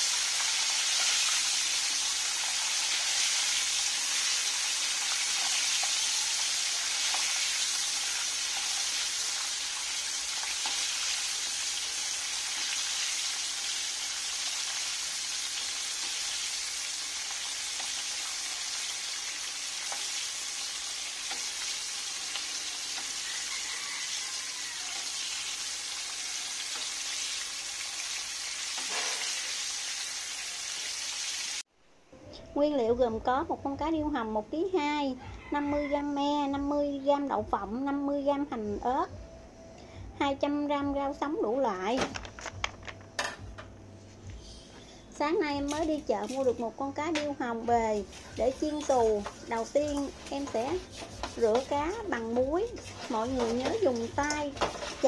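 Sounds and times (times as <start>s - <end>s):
oil sizzling in a wok: 0.0s - 31.7s, 44.4s - 55.0s.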